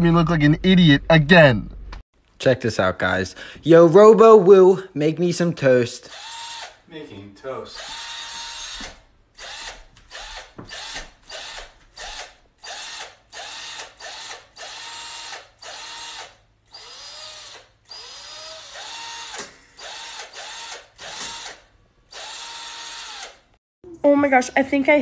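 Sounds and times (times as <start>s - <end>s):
cordless drill motor whine: 6.1s - 6.8s, 7.8s - 23.4s.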